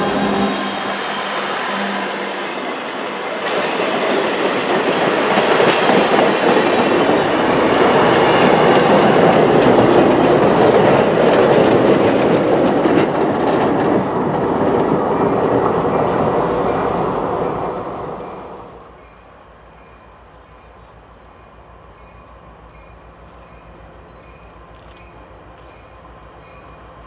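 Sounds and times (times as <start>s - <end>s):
train wheels rolling on rails: 0.0s - 27.0s
wheels clicking over rail joints: 3.4s - 16.9s.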